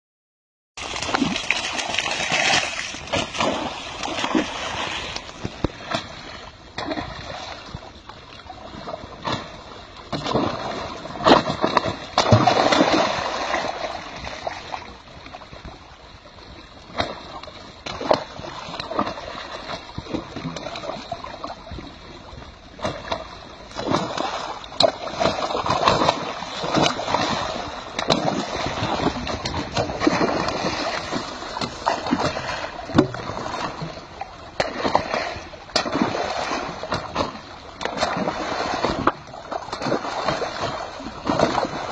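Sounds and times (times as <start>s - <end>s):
fish splashing: 0.8s - 7.7s, 10.1s - 14.6s, 22.8s - 41.9s
water churning at pipe outlet: 0.8s - 15.8s, 16.4s - 41.9s.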